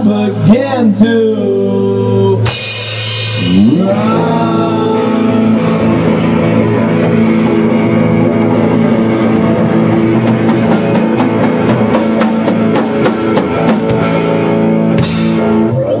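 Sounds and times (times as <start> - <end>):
electric guitars: 0.0 - 16.0
drum kit: 2.4 - 16.0.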